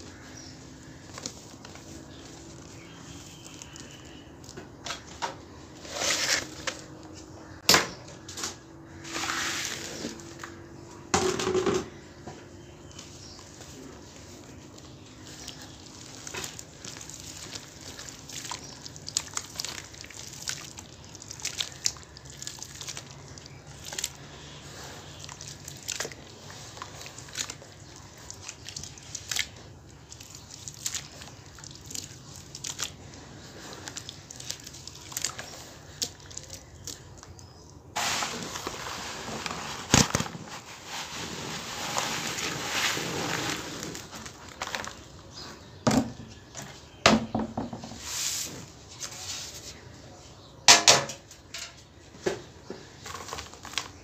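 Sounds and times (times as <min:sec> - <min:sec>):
hands squishing wet cement: 0:00.0 - 0:07.7, 0:11.9 - 0:47.0, 0:52.4 - 0:54.0
wet splats and drips: 0:14.8 - 0:38.0.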